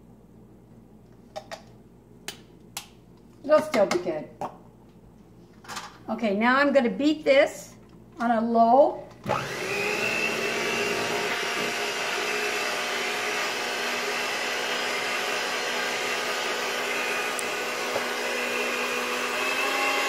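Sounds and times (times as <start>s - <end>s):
electric hand mixer running: 9.2s - 20.0s.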